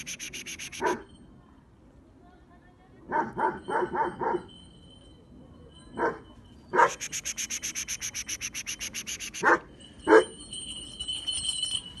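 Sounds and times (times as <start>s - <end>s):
fast even rasping: 0.0s - 0.9s, 6.9s - 9.4s
dog barking: 0.8s - 1.0s, 3.1s - 4.5s, 6.8s - 7.1s, 9.4s - 10.3s.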